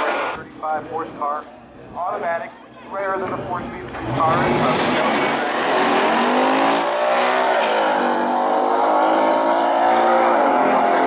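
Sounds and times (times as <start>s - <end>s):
car engines accelerating hard: 3.2s - 11.0s.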